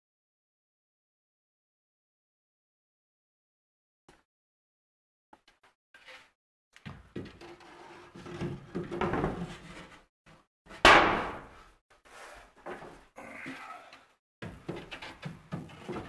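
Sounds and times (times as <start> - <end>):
wooden board scraping: 6.0 - 10.1
wooden board slapping down: 10.7 - 11.6.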